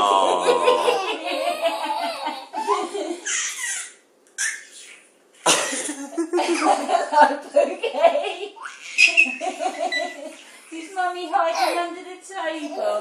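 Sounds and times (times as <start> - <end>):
baby laughing: 0.4 - 4.8, 8.1 - 10.6.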